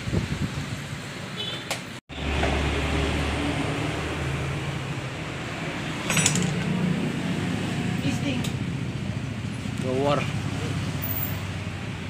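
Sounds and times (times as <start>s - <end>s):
metallic clinking: 6.0s - 6.8s.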